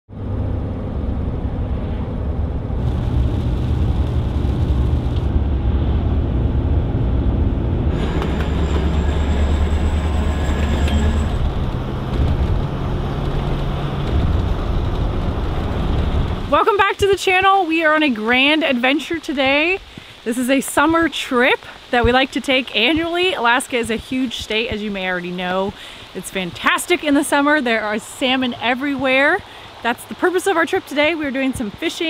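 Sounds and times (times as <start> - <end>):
low hum shifting in pitch: 0.1 - 14.5
vehicle engine and road noise: 0.1 - 21.1.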